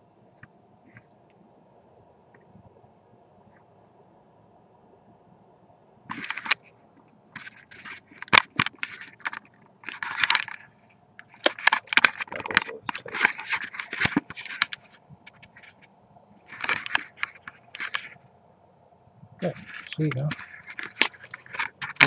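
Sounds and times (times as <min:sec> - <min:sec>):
camera handling noise: 0:06.1 - 0:06.7, 0:07.4 - 0:15.9, 0:16.5 - 0:18.2, 0:19.4 - 0:22.0.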